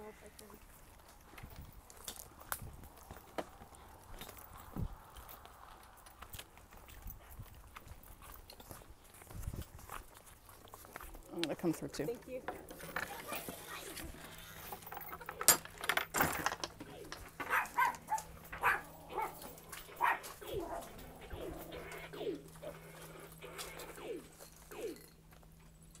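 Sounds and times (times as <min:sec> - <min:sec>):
animal whines: 0:16.8 - 0:25.1.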